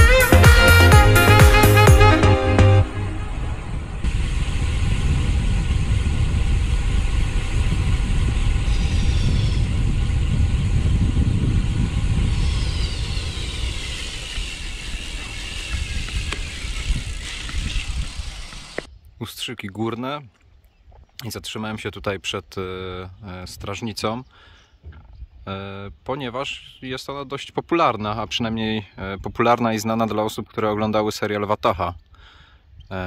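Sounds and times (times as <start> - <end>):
thin whine falling in pitch: 2.8 - 18.9
wind buffeting microphone: 3.1 - 19.1.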